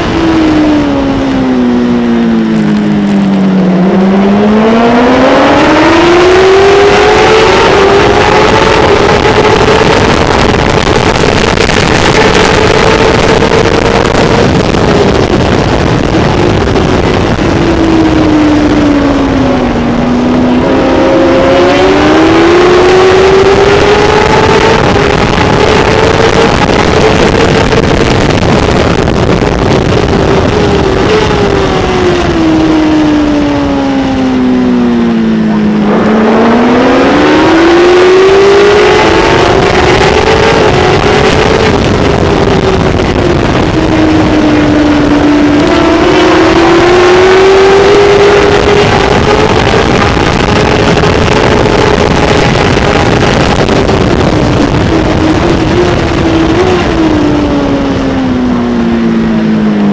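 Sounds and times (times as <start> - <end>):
motorcycle engine at racing speed: 0.0 - 59.9
wind rush: 0.0 - 59.9.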